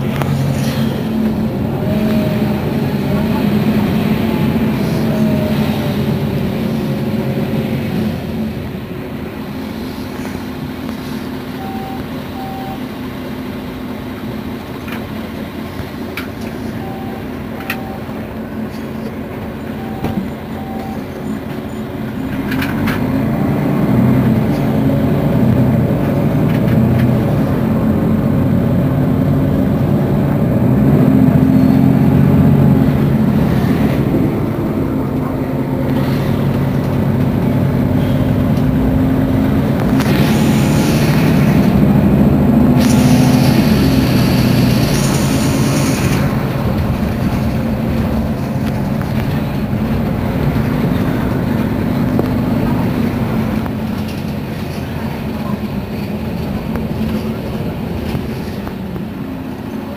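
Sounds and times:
bus diesel engine running: 0.0 - 59.9
short beeps: 11.5 - 12.9, 16.8 - 18.3, 19.7 - 21.2.

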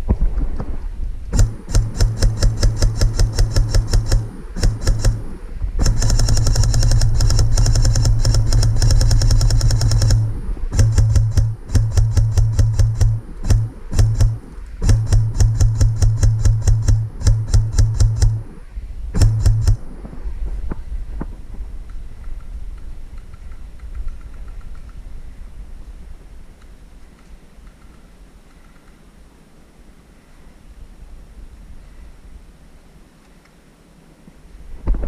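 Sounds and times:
low motor hum: 0.0 - 21.7
airsoft rifle firing bursts: 1.3 - 20.2.

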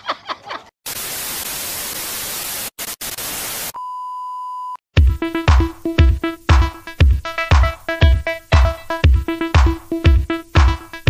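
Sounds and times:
people laughing: 0.0 - 0.7
white-noise static: 0.9 - 3.8
beep-like test tone: 3.8 - 4.8
electronic music beat: 5.0 - 11.0.

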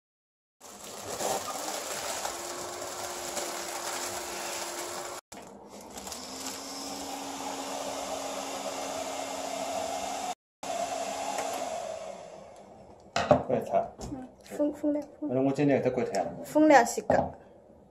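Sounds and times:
air cushion machine blowing: 6.2 - 12.7.

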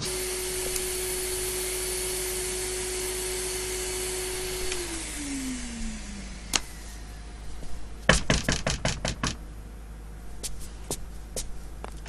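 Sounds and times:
knocking on wooden door: 8.1 - 9.4.

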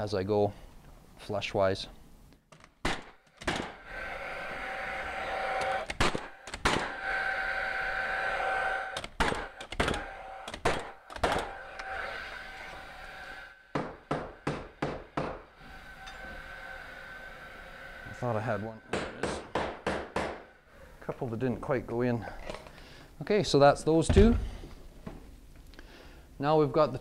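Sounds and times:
nail gun shots: 2.8 - 3.8, 5.9 - 6.9, 9.0 - 11.5
nail gun whine: 2.8 - 12.0
hammer blows on nails: 5.4 - 7.5.

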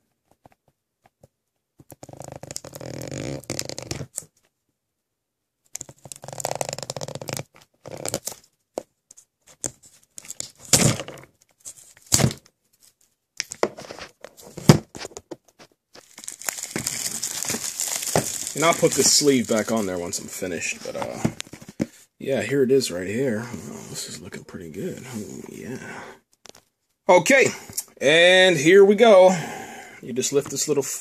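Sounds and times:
shrink wrap tearing and crinkling: 2.0 - 4.3, 5.8 - 8.4, 16.0 - 21.7.

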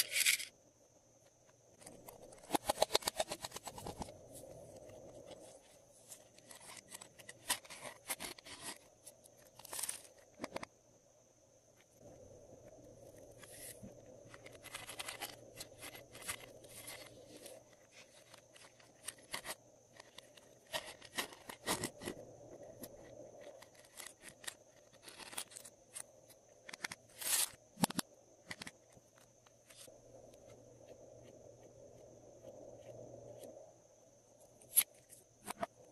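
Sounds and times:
small plastic items clicking and rattling: 1.8 - 4.2, 6.4 - 10.7, 14.2 - 22.2, 22.8 - 29.8.

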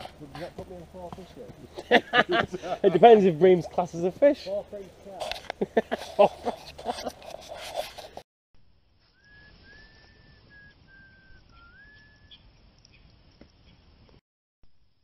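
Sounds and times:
fire crackling: 0.0 - 8.2, 8.8 - 14.2
steam whistling from logs: 9.1 - 12.4.

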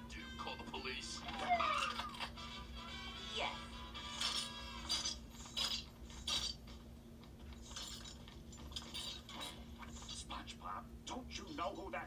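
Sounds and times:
metallic clinks and clanks: 7.6 - 9.6.

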